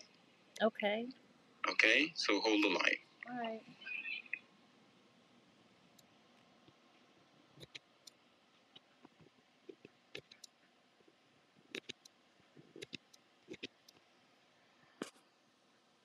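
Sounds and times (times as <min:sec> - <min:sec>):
background hiss: 0:00.0 - 0:16.0
faint irregular clicks and taps: 0:05.9 - 0:14.1, 0:14.9 - 0:15.3.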